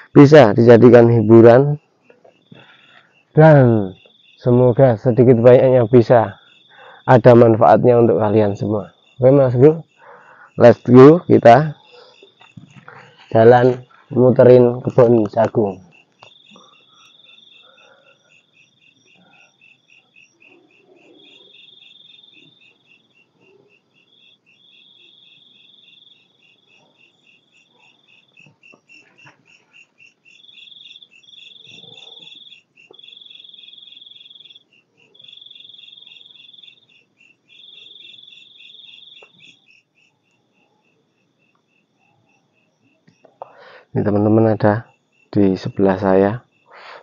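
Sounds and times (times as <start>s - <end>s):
cricket buzzing trill: 0.0s - 47.0s
cricket pulsing chirp: 0.0s - 47.0s
faint footsteps: 12.2s - 14.2s.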